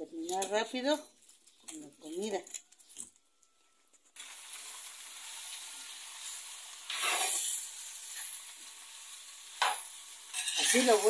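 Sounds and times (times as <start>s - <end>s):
meat sizzling in oil: 4.2s - 11.0s
metal utensil turning meat: 6.9s - 8.4s, 9.6s - 11.0s.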